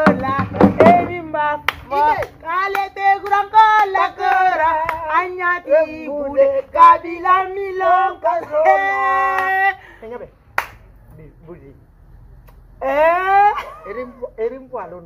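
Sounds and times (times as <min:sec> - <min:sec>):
woman singing unaccompanied: 0:00.0 - 0:09.8, 0:12.8 - 0:14.2.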